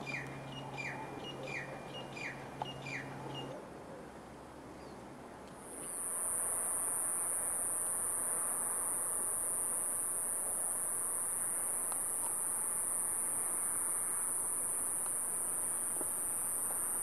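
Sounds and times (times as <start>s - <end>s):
soft hiss: 3.7s - 17.0s
high-pitched insect chorus: 5.8s - 17.0s
faint ticks: 11.8s - 12.5s, 15.0s - 17.0s.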